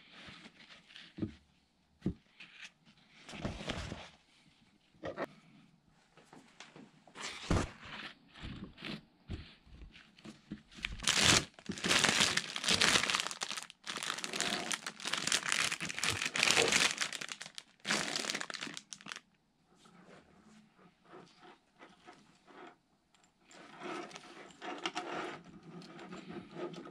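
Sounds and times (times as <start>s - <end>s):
plastic packaging crinkling: 10.8s - 19.2s.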